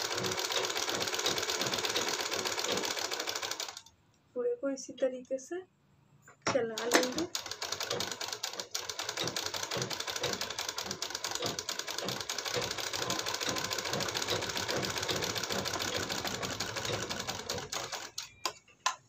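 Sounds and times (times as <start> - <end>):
sewing machine stitching: 0.0 - 3.9, 6.7 - 18.3.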